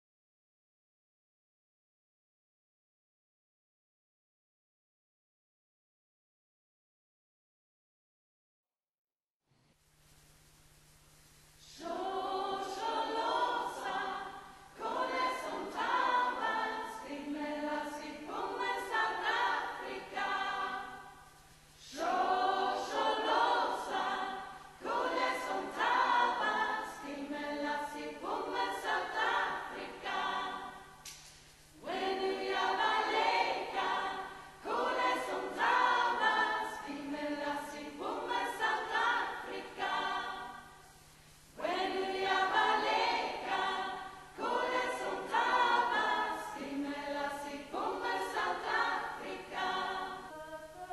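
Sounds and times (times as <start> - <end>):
women's choir singing a cappella: 11.6 - 41.0, 41.6 - 50.9.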